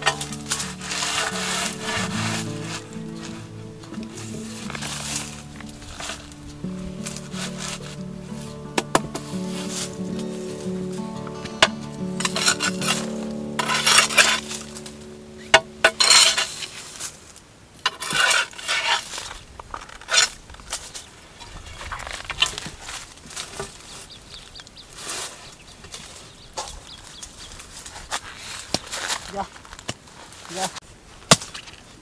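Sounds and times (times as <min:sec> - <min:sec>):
background music: 0:00.0 - 0:17.1.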